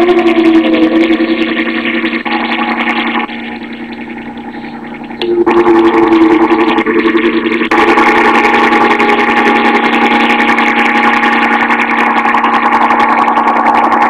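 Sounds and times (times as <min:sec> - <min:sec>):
buzzing drone: 0:00.0 - 0:14.0.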